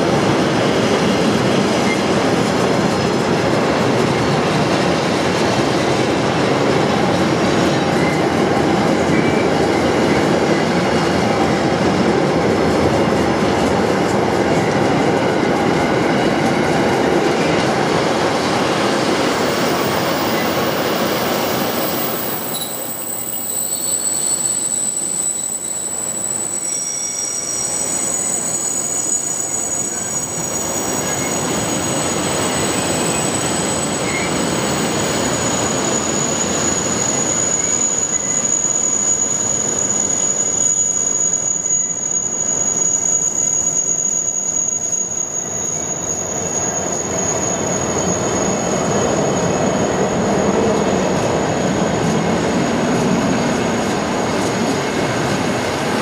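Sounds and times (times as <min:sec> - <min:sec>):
train wheels rumbling on track: 0:00.0 - 0:56.0
high-pitched wheel squeal: 0:19.5 - 0:50.5.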